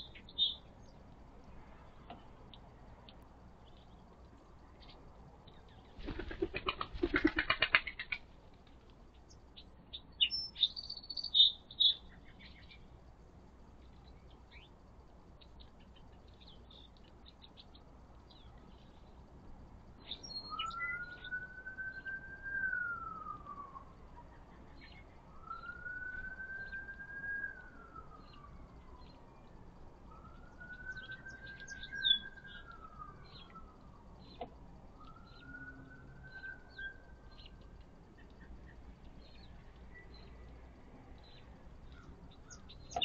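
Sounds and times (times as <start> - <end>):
small birds chirping: 0.0 - 43.0
siren wailing: 20.5 - 24.0, 25.3 - 34.2, 34.9 - 37.2.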